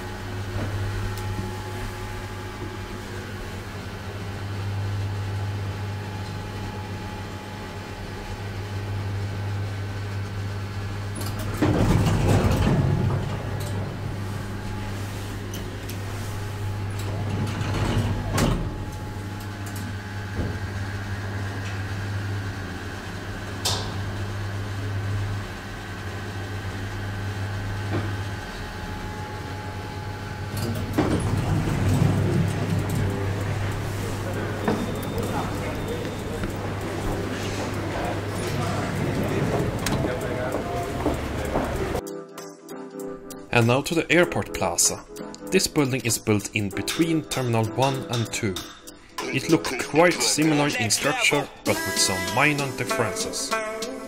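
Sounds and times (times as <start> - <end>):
elevator humming: 0.0 - 42.1, 43.3 - 54.0
elevator doors sliding open: 10.7 - 42.0.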